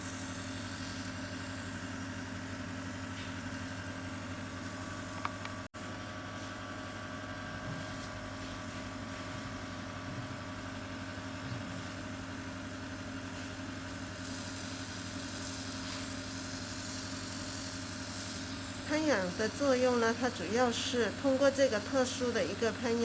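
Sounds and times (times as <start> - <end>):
air spray gun hissing: 0.0 - 5.3, 13.2 - 21.6
compressor humming: 0.0 - 23.0.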